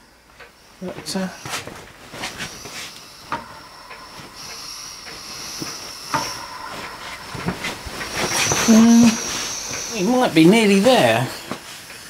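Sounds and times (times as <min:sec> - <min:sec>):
steam hissing from jets: 0:00.6 - 0:12.0.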